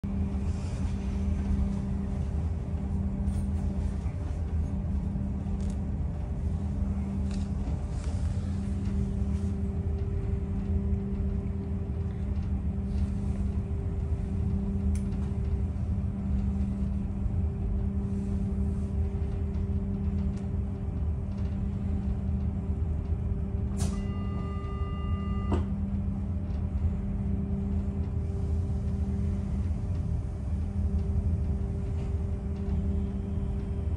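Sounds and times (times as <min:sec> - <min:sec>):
train equipment humming: 0:00.0 - 0:33.9
click: 0:14.9 - 0:15.3
brief electronic tone: 0:23.9 - 0:25.7.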